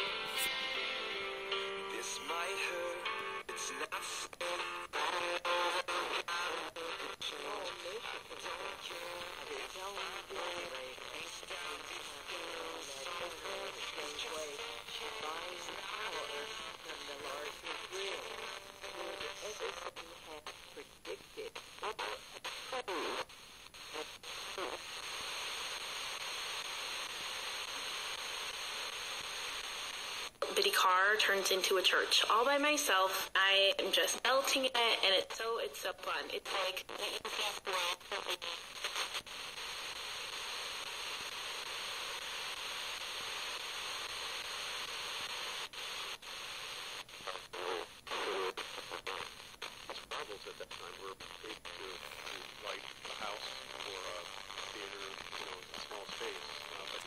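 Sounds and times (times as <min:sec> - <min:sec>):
radio static hiss: 0:00.0 - 0:57.0
radio station talk: 0:00.0 - 0:57.0
faint radio voice: 0:05.9 - 0:23.1, 0:47.1 - 0:57.0.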